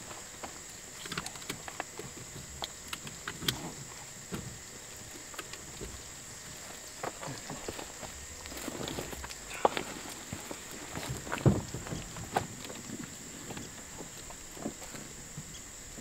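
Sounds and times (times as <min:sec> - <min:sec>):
high-pitched insect drone: 0:00.0 - 0:16.0
rustling of gear: 0:04.9 - 0:15.2.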